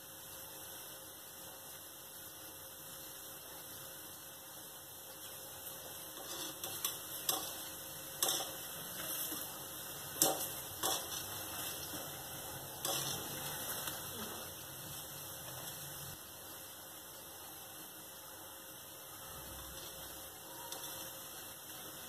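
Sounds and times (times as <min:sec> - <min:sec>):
oil sizzling: 0:00.0 - 0:22.0
wire skimmer clinking on pan: 0:06.1 - 0:12.1, 0:12.7 - 0:13.6, 0:19.7 - 0:21.2.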